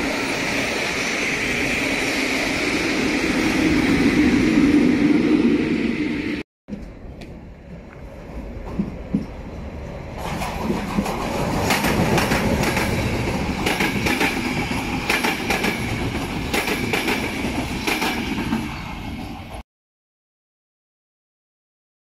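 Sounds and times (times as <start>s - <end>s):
train rushing past: 0.0s - 19.6s
wheels clicking over rail joints: 6.7s - 18.6s.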